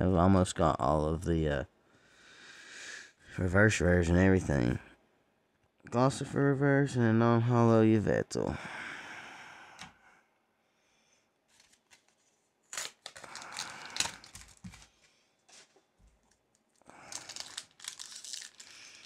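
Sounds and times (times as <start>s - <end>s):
cardboard packaging tearing: 11.5s - 14.9s, 16.9s - 19.0s.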